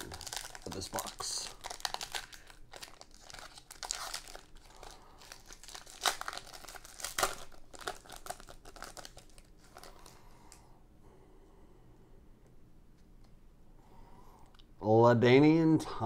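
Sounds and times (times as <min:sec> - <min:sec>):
wrapper crinkling as torn open: 0:00.0 - 0:10.2.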